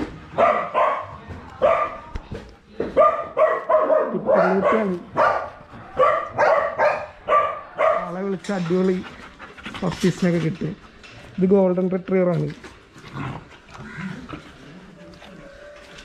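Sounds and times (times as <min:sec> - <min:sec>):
dog barking: 0:00.3 - 0:02.1, 0:02.9 - 0:08.2.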